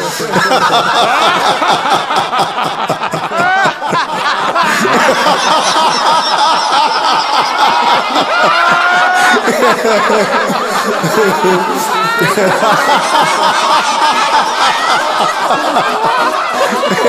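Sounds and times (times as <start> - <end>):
group of people laughing: 0.0 - 17.0.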